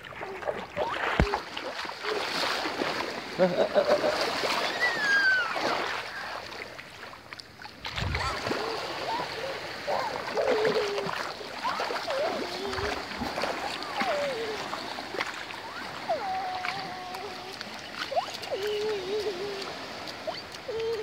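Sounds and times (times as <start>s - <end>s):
child voice sounds: 0.0s - 2.4s, 8.0s - 21.0s
feet splashing in water: 0.0s - 21.0s
small waves washing over shallows: 0.0s - 21.0s.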